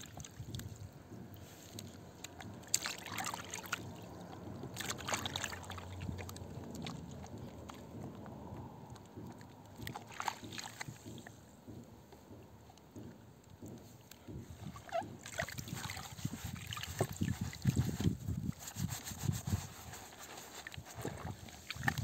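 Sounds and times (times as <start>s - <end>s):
hands lathering soap in water: 0.0s - 11.5s, 13.6s - 22.0s
foam sponge squelching: 1.4s - 7.8s, 14.4s - 22.0s.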